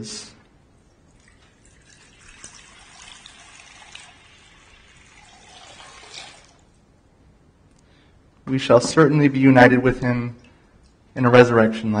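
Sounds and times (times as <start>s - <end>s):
water trickling and splashing: 0.8s - 6.8s.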